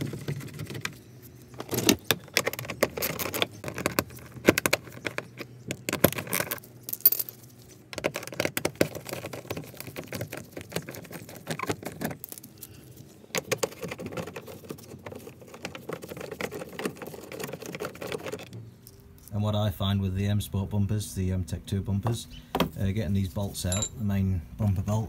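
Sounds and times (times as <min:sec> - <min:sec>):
metal sockets rattling: 0:23.6 - 0:24.0.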